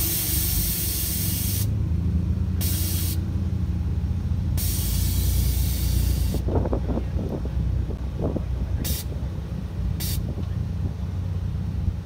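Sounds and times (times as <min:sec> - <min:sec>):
air suspension hissing: 0:00.0 - 0:01.8, 0:02.6 - 0:03.3, 0:04.5 - 0:07.5, 0:08.2 - 0:10.6
steady low hum: 0:00.0 - 0:12.0.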